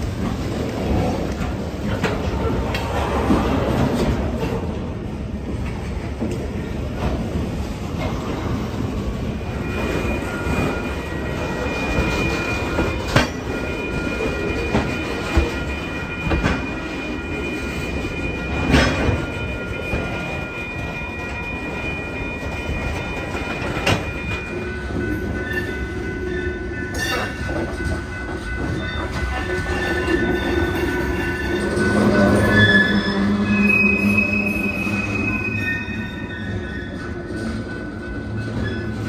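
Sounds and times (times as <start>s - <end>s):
steel wheels rumbling on rail: 0.0s - 39.0s
high-pitched wheel squeal: 29.8s - 36.9s.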